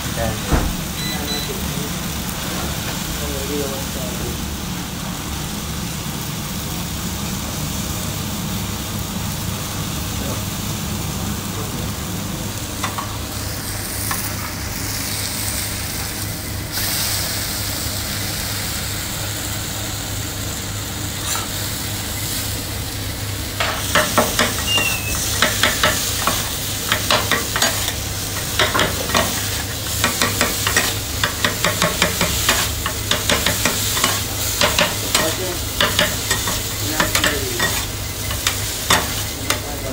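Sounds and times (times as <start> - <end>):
food sizzling on a griddle: 0.0 - 39.9
spatulas clacking on griddle: 23.6 - 39.7.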